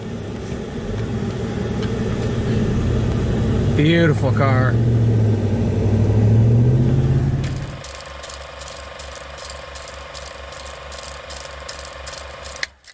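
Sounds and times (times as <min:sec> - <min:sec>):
vehicle engine humming: 0:00.0 - 0:12.9
film projector clatter and whir: 0:07.4 - 0:12.9.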